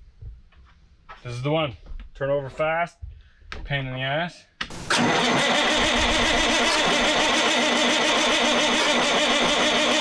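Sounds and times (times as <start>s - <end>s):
diesel engine cranking: 4.9s - 10.0s.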